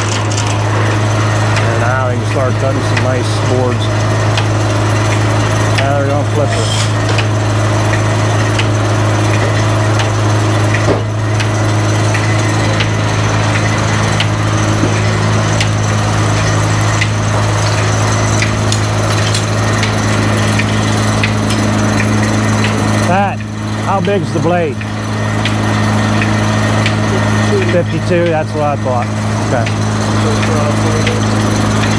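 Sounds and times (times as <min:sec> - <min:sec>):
sharp clicks and knocks: 0:00.0 - 0:01.8, 0:04.3 - 0:24.2
engine humming: 0:00.0 - 0:31.9
circular saw blade cutting log: 0:05.7 - 0:08.8.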